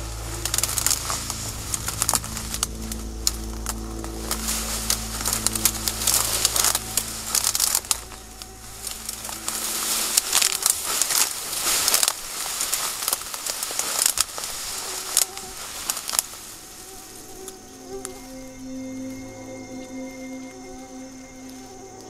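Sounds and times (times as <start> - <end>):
footsteps crunching dry leaves: 0.0 - 19.3.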